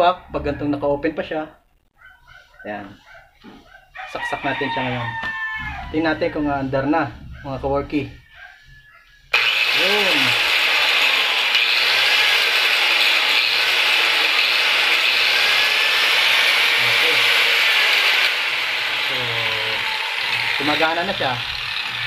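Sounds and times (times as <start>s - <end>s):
angle grinder running: 9.3s - 22.0s.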